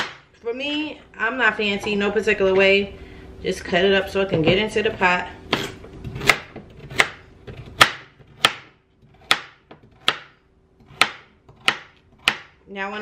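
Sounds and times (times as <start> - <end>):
knife chopping on a cutting board: 0.0 - 0.3, 5.0 - 12.6.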